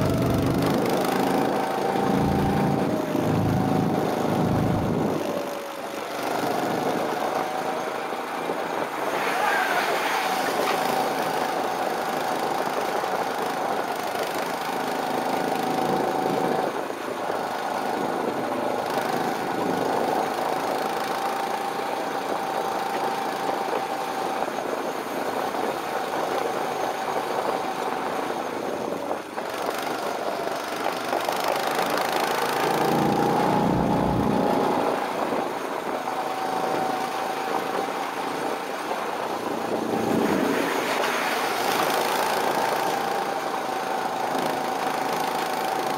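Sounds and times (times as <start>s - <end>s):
deeper rumble: 0.0s - 5.4s, 32.4s - 35.3s
go-kart engine whine: 0.0s - 45.9s.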